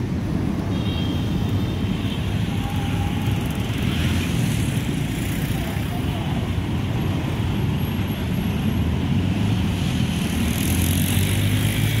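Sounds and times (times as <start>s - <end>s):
road traffic rumble: 0.0s - 12.0s
vehicle engine: 2.5s - 12.0s.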